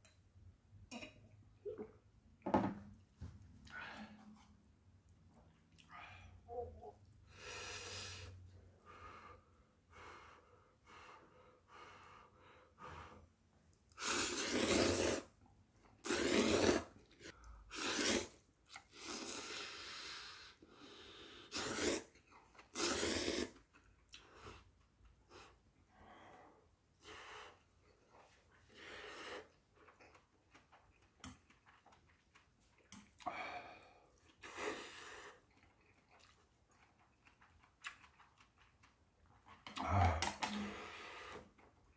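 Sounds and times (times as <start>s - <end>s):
person slurping noodles: 13.9s - 15.3s, 16.0s - 23.7s.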